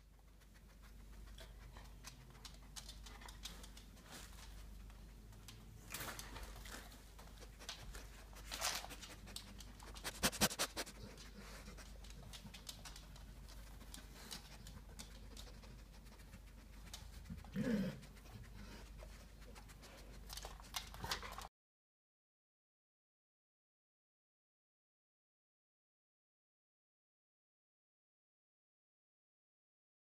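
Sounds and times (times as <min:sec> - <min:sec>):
dog sniffing: 0:00.0 - 0:05.5, 0:06.4 - 0:21.4
dog claws scratching wooden floor: 0:05.4 - 0:17.2.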